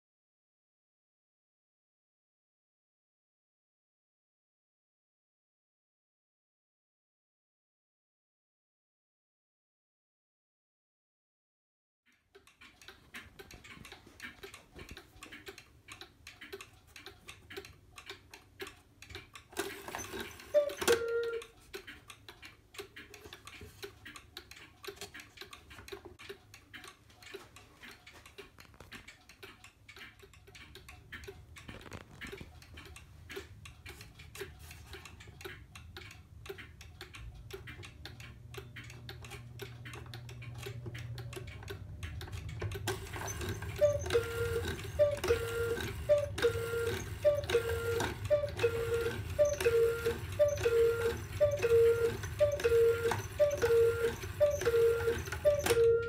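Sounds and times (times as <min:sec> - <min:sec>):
clock ticking: 0:12.1 - 0:56.0.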